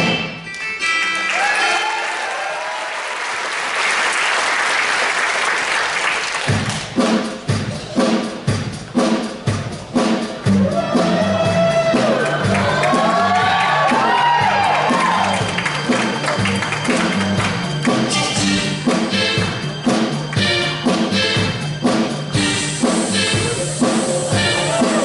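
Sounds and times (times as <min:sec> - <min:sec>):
audience applauding: 0:01.2 - 0:07.0, 0:12.0 - 0:18.2
live band playing accented hits: 0:06.4 - 0:25.0.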